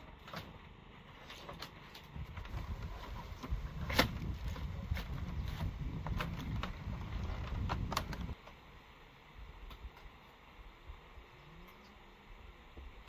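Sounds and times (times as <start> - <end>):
bamboo slats clicking and creaking: 0.0 - 8.6.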